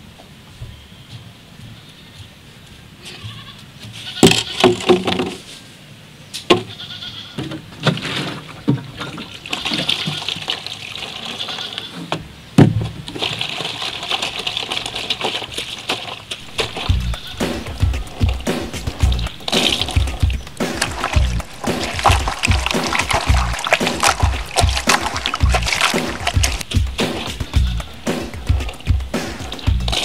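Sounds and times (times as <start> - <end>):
plastic containers clattering: 4.2 - 5.5, 7.4 - 16.5, 20.8 - 26.7
water pouring into plastic basin: 8.8 - 11.8, 13.0 - 16.9, 19.4 - 26.7.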